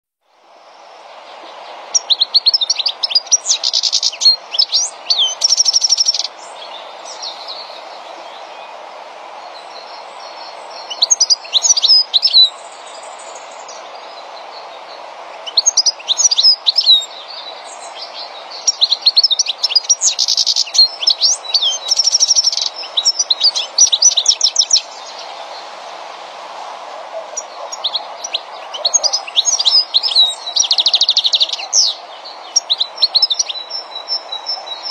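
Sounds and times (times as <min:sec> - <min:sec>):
goldfinch twittering: 0:01.9 - 0:08.7, 0:09.8 - 0:14.2, 0:15.3 - 0:25.3, 0:27.1 - 0:34.9.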